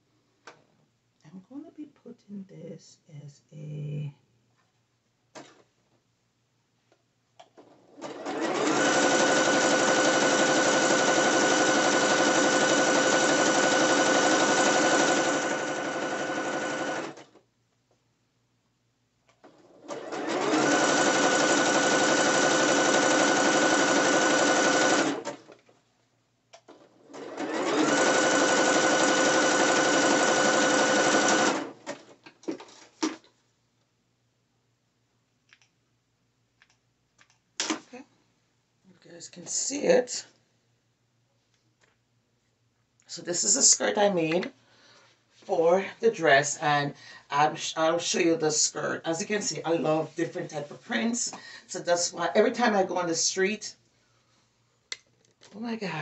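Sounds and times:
sewing machine stitching: 7.5s - 17.4s, 19.4s - 25.7s, 26.6s - 33.3s.

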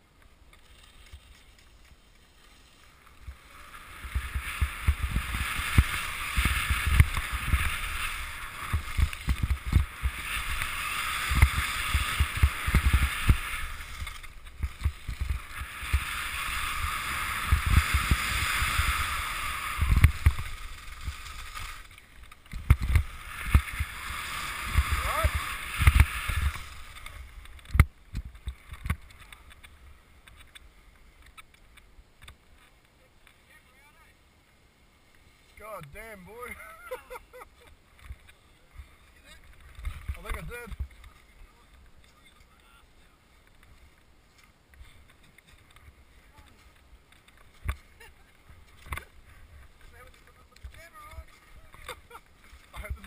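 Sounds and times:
skis scraping over snow: 0.0s - 31.8s, 32.4s - 53.0s
wind buffeting microphone: 3.3s - 21.6s.

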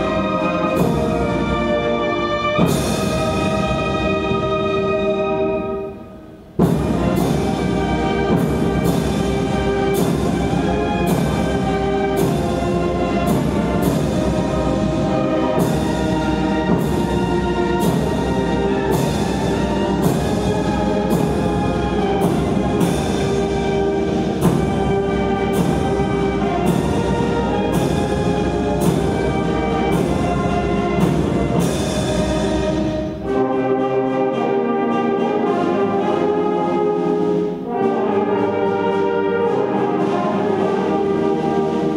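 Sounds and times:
brass band music: 0.0s - 41.9s
timpani and percussion strokes: 0.0s - 41.9s.

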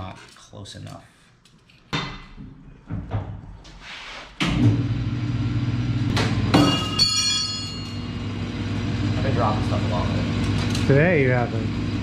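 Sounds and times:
metal part dropped and ringing: 6.5s - 8.1s.

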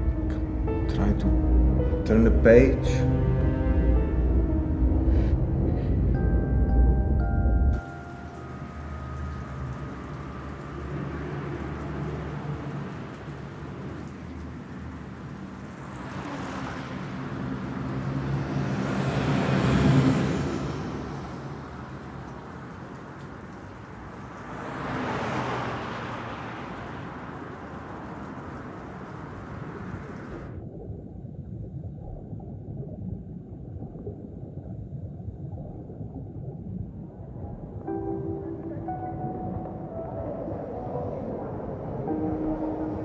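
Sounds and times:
low rumbling drone: 0.0s - 23.6s, 27.6s - 43.0s
vehicle passing by: 0.0s - 30.5s.

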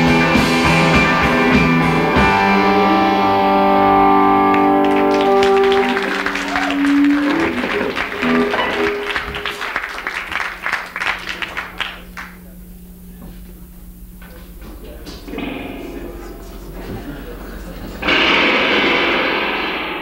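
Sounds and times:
electric guitar chord ringing: 0.0s - 20.0s
low steady hum: 2.6s - 19.4s
audience clapping: 4.2s - 12.8s.

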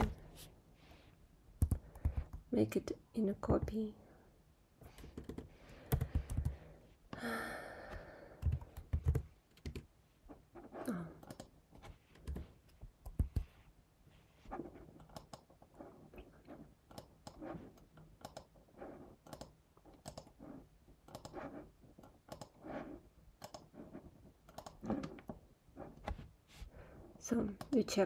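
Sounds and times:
faint keyboard typing: 1.6s - 2.6s, 4.8s - 6.8s, 7.8s - 10.0s, 10.8s - 13.6s, 14.5s - 26.3s, 27.3s - 28.0s.

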